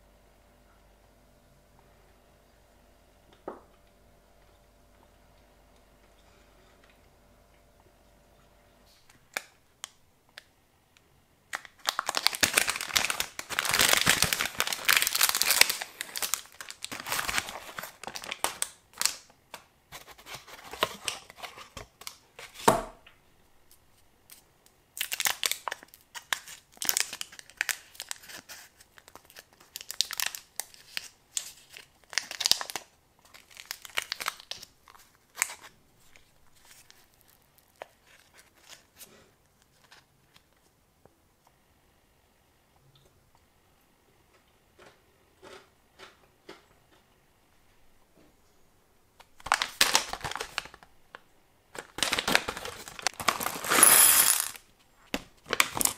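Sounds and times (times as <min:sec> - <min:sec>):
plastic wrapper crinkling: 0:11.5 - 0:19.3, 0:25.0 - 0:40.7, 0:49.2 - 0:54.7, 0:55.4 - 0:55.9.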